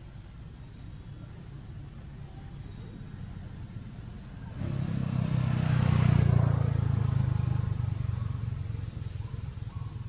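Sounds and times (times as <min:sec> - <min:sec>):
vehicle engine passing: 0:04.4 - 0:09.8.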